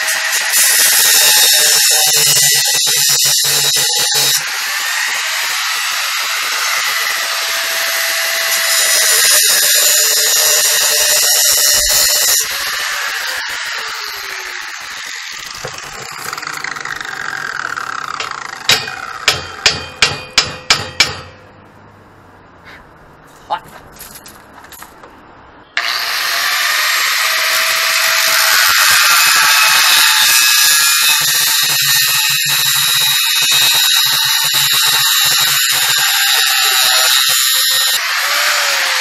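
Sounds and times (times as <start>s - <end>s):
angle grinder grinding steel: 0.0s - 20.3s, 25.8s - 39.0s
grinder disc winding down: 11.9s - 19.3s
sharp metallic knocks: 15.3s - 21.6s.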